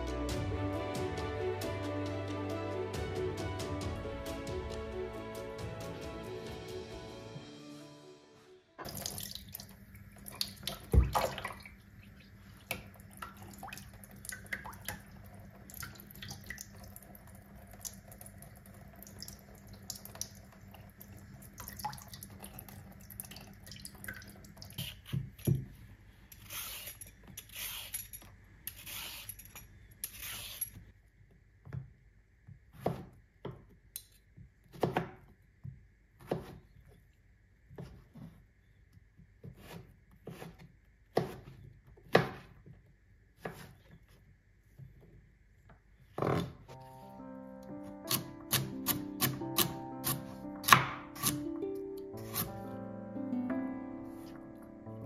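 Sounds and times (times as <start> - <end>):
knife chopping on cutting board: 39.4 - 41.5, 48.1 - 51.4, 52.2 - 52.5.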